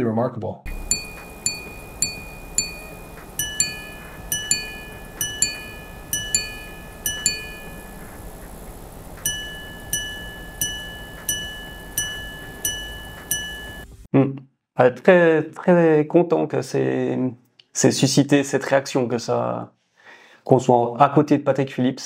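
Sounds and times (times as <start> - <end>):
watch chiming gongs: 0.7 - 14.0.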